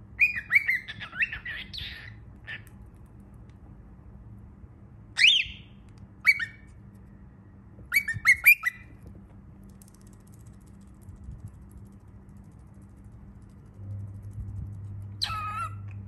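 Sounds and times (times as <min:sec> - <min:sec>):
baby cockatiel chirping: 0:00.2 - 0:02.7, 0:05.2 - 0:05.6, 0:06.2 - 0:06.6, 0:07.9 - 0:08.9, 0:15.2 - 0:16.0.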